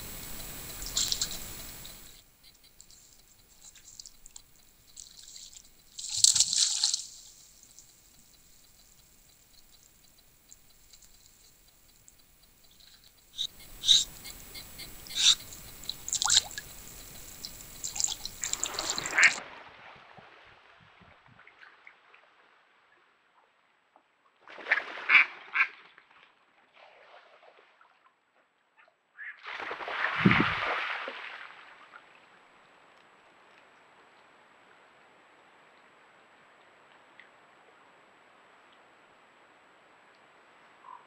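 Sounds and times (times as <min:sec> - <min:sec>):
faint ticks: 0:00.0 - 0:19.4
faint steady hiss: 0:00.0 - 0:19.5, 0:29.6 - 0:41.0
faint river sounds: 0:00.0 - 0:41.0
otter splashing in water: 0:00.5 - 0:11.3, 0:13.5 - 0:19.4.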